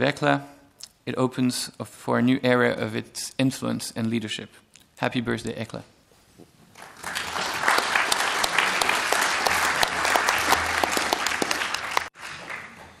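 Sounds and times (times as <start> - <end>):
audience clapping: 6.7 - 13.0.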